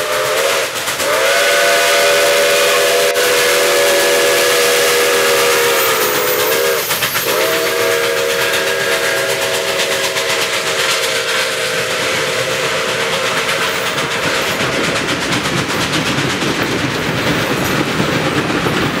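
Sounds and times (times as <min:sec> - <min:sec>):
steam locomotive chime whistle: 0:00.0 - 0:14.5
train hissing and clattering past: 0:00.0 - 0:19.0.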